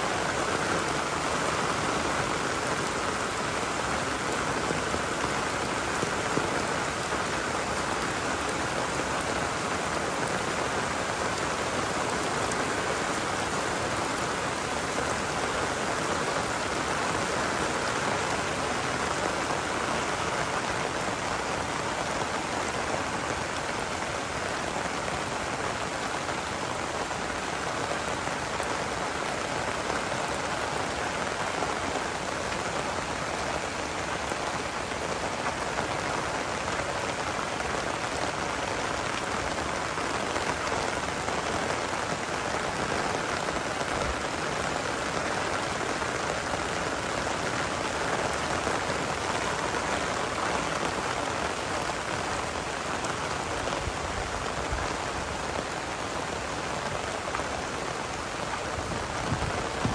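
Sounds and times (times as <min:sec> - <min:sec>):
heavy rain falling: 0:00.0 - 0:59.9.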